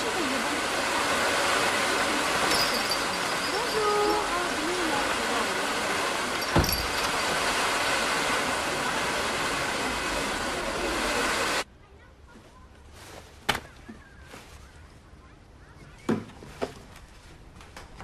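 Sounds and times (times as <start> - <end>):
loud steady hiss: 0.0 - 11.7.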